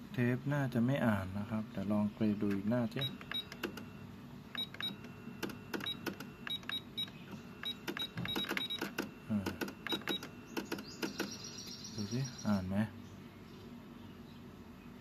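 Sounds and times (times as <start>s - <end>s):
cassette mechanism whirring: 2.2s - 11.8s
short high beeps: 4.6s - 10.5s.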